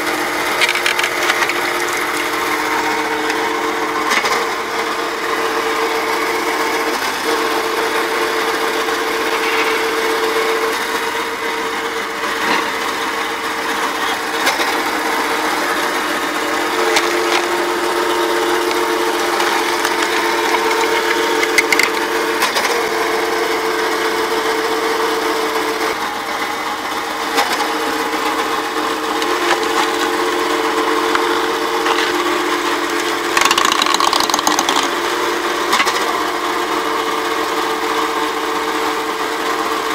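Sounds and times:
hydraulic log splitter running: 0:00.0 - 0:39.9
wood splitting cracks: 0:00.4 - 0:03.4, 0:16.7 - 0:22.7, 0:31.1 - 0:35.0.

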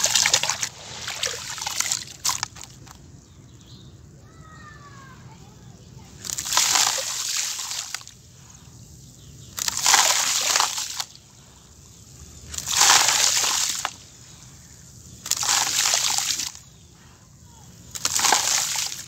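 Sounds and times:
mud pouring into water: 0:00.0 - 0:03.0, 0:06.2 - 0:08.2, 0:09.5 - 0:11.5, 0:12.2 - 0:16.7, 0:17.8 - 0:19.0.

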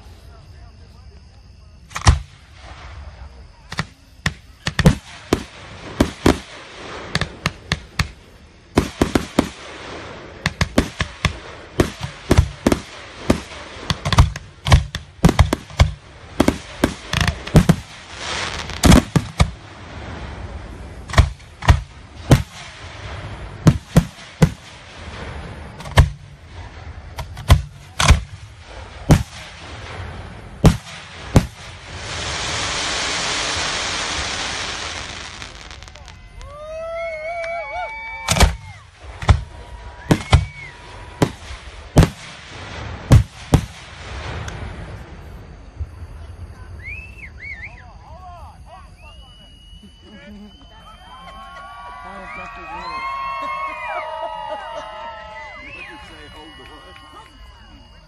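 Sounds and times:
fireworks crackling hiss: 0:00.0 - 0:58.0
fireworks bangs: 0:01.8 - 0:47.0.

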